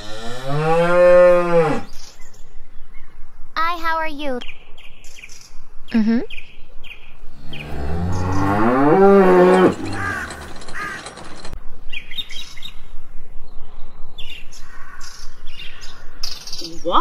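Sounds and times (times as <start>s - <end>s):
cow mooing: 0.0s - 1.9s, 7.3s - 11.0s
birds chirping: 1.2s - 12.8s.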